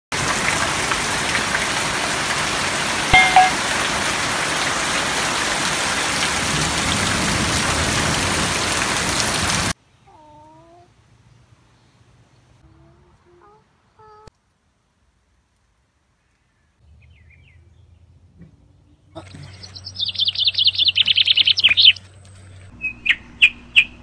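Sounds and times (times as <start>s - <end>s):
heavy rain pouring: 0.1s - 9.8s
short pitched call: 3.2s - 3.6s.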